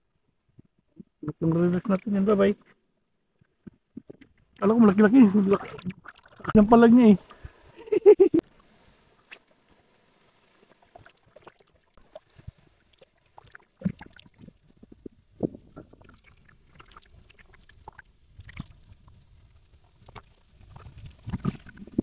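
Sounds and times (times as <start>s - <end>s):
sea water sloshing and lapping: 3.4s - 7.8s, 8.5s - 22.0s
small water splashes: 4.0s - 7.7s, 9.2s - 22.0s.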